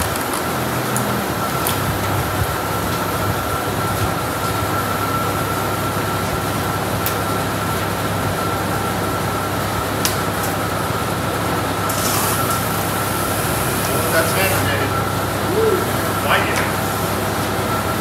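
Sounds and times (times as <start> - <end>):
fan whirring: 0.0 - 18.0
high whine: 0.0 - 18.0.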